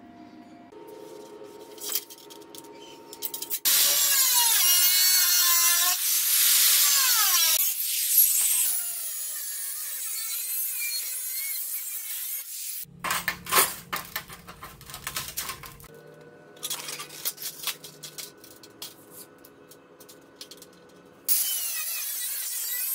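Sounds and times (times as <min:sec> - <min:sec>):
angle grinder cutting steel: 0:03.6 - 0:12.9, 0:21.3 - 0:22.9.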